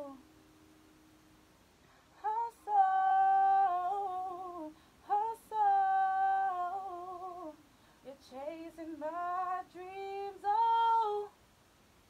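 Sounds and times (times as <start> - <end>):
person singing wordless phrases: 0.0 - 0.3, 2.2 - 11.4
sharp breath in: 7.7 - 8.0.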